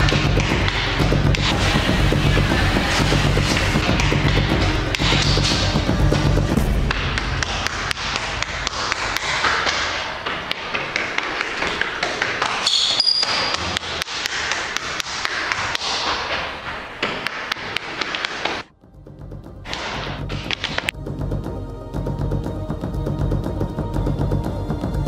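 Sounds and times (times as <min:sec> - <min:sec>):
running footsteps on stairs: 0:00.0 - 0:18.7
high squeak: 0:12.6 - 0:13.6.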